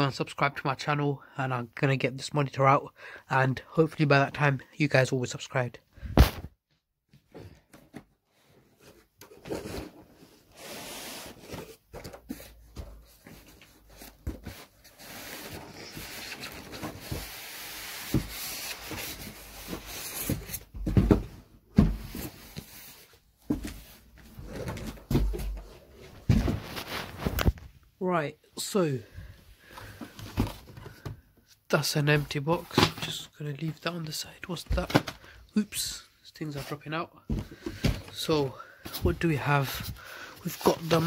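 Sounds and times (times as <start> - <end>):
cardboard and polystyrene rubbing: 9.6 - 11.6.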